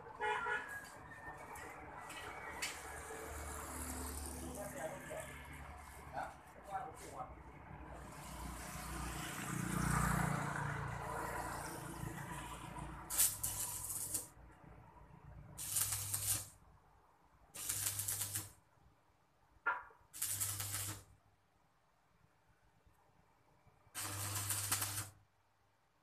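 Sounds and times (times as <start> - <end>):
arc welding crackle: 13.0 - 14.4, 15.6 - 16.6, 17.6 - 18.6, 20.2 - 21.1, 24.0 - 25.2.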